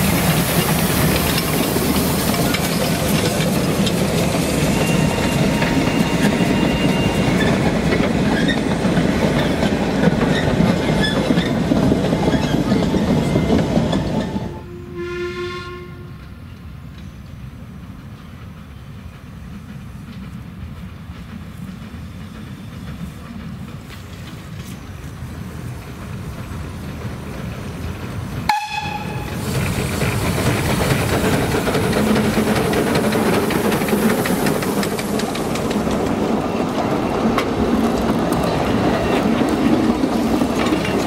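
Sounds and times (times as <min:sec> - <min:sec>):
steam locomotive running: 0:00.0 - 0:15.2, 0:16.0 - 0:41.0
steam whistle: 0:14.4 - 0:16.2, 0:28.5 - 0:29.4.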